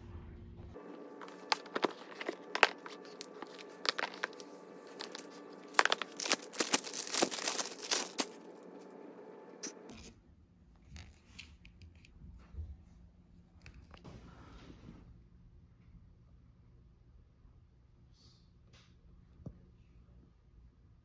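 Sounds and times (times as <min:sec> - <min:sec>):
plastic wrap crinkling: 0:00.8 - 0:09.8
faint steady hum: 0:00.8 - 0:21.0.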